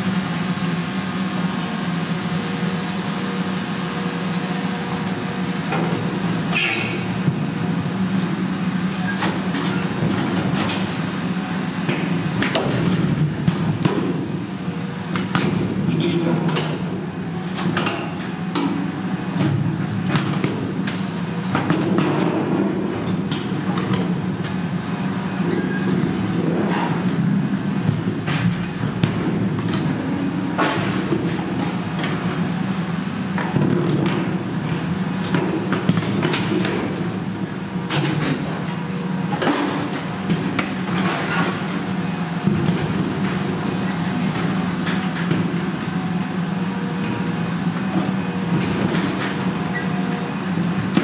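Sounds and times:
excavator engine droning: 0.0s - 15.1s.

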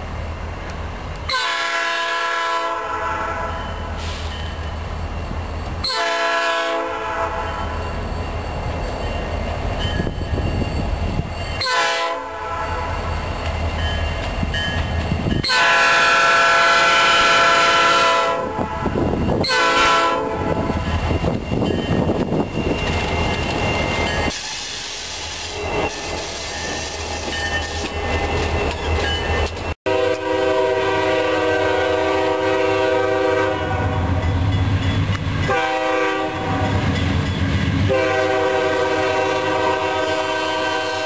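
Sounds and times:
locomotive horn blasts: 1.3s - 4.1s, 5.8s - 7.8s, 11.6s - 13.1s, 15.4s - 20.9s, 29.8s - 34.3s, 35.4s - 37.0s, 37.9s - 41.0s
train wheels clattering on rails: 13.1s - 15.7s, 18.9s - 30.3s, 34.2s - 38.6s.

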